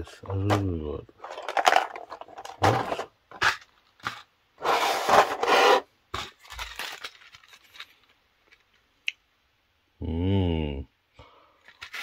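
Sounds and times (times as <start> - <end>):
plastic trays crinkling: 0.1 - 8.8, 11.6 - 12.0.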